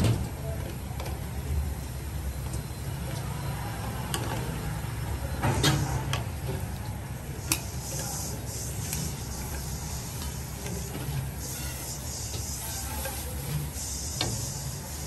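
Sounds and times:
broth simmering hiss: 0:07.2 - 0:15.0.

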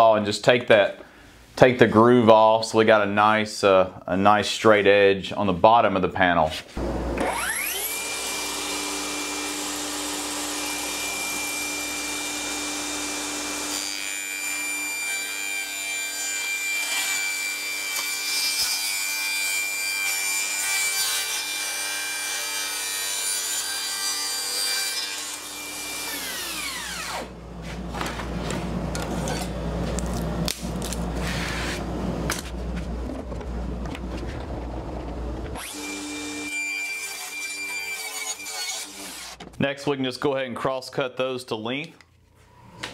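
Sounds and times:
table saw whining: 0:06.8 - 0:27.4, 0:34.4 - 0:39.4
low rumble: 0:31.9 - 0:35.6
saw ripping wood: 0:35.6 - 0:39.4.

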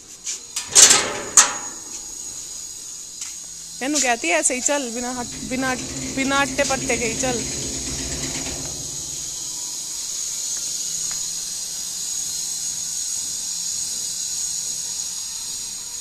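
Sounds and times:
steady high-pitched hiss: 0:00.0 - 0:16.0.

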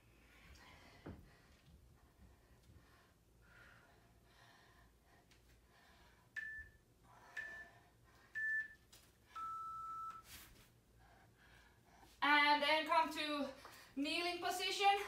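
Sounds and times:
long low timer beep: 0:06.4 - 0:07.7, 0:08.4 - 0:08.8, 0:09.4 - 0:10.2.

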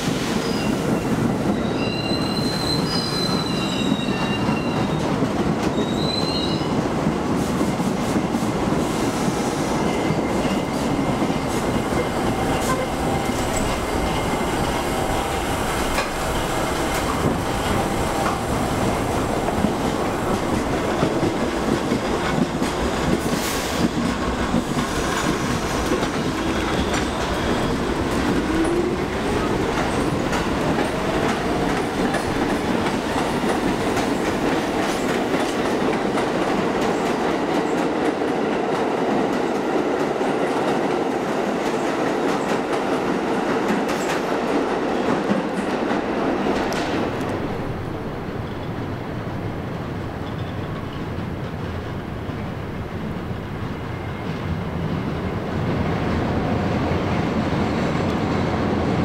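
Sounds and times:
subway train rumble: 0:00.0 - 0:59.0
wheels clacking over rail joints: 0:10.4 - 0:40.9.

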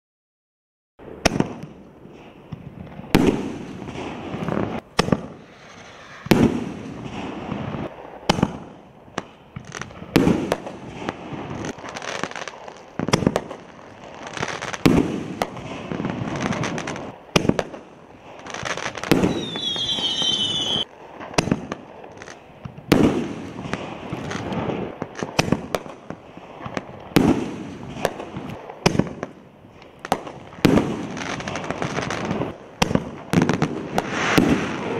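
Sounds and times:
firework shells bursting: 0:18.8 - 0:22.2, 0:23.0 - 0:34.9
firework whistle: 0:19.0 - 0:20.9, 0:33.4 - 0:34.9
firework launch thumps: 0:32.8 - 0:34.9.

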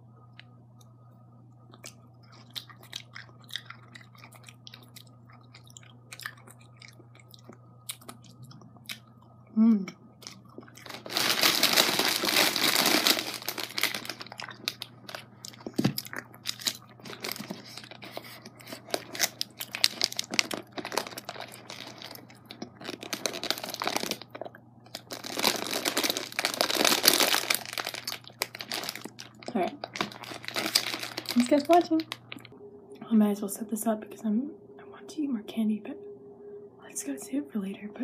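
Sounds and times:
plastic bag crinkling: 0:10.2 - 0:32.5.

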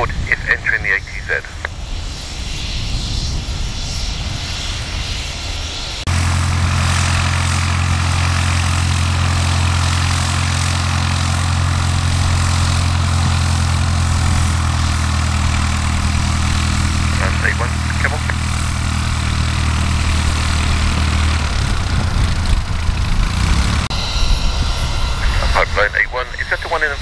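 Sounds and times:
large engine humming: 0:06.0 - 0:27.0.

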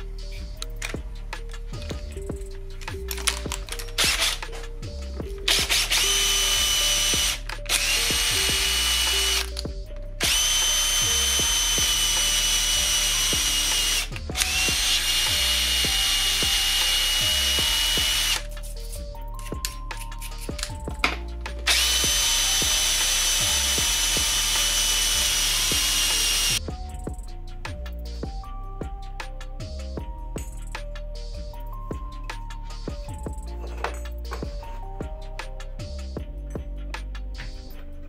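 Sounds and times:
electric drill whining into metal: 0:03.0 - 0:04.7, 0:05.4 - 0:18.5, 0:21.6 - 0:26.6.

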